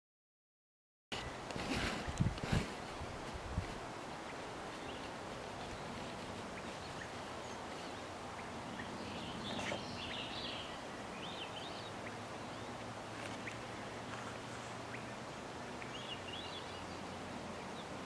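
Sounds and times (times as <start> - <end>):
steady background hiss: 1.2 - 18.0
bird chirps: 4.2 - 13.7, 14.8 - 18.0.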